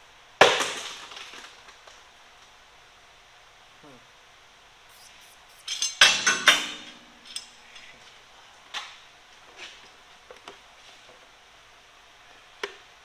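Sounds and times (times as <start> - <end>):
metal tool striking steel: 4.9 - 7.4
light metallic clinks: 4.9 - 7.9.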